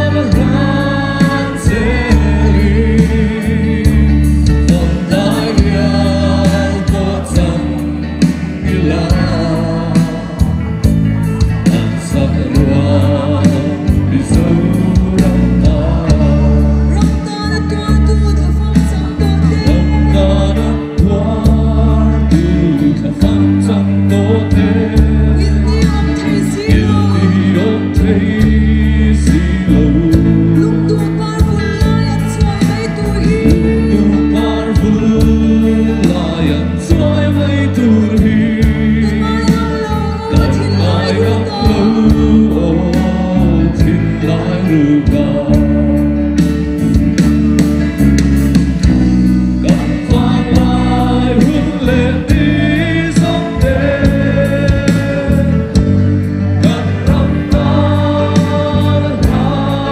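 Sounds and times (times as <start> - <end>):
amplified accompaniment with bass: 0.0 - 59.9
choir singing in unison: 49.7 - 55.6, 56.6 - 59.9.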